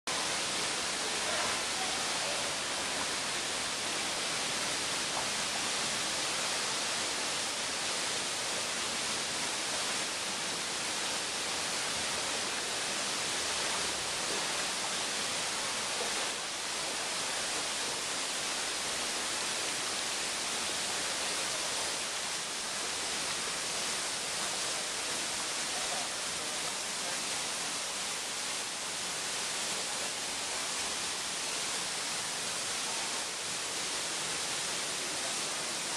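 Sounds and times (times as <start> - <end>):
waterfall rushing: 0.1 - 35.9.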